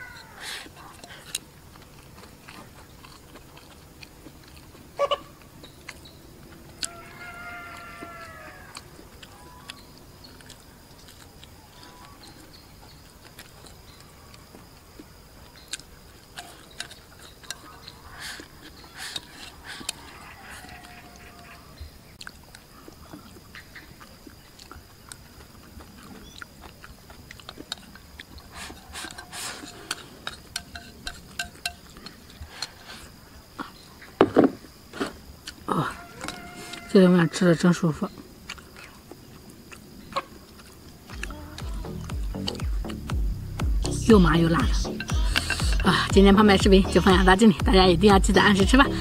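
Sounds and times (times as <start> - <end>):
chewing: 0.0 - 34.0, 35.0 - 36.9, 38.1 - 43.2, 44.8 - 46.1
chopsticks clicking on bowl: 29.9 - 31.9.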